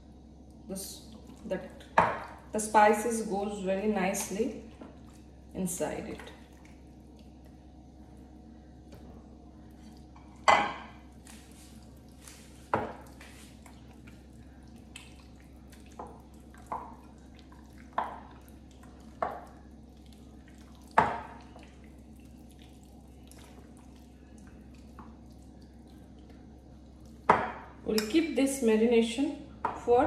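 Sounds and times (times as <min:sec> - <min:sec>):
faint steady hum: 0:00.0 - 0:30.0
hands squelching meat in marinade: 0:11.0 - 0:27.3.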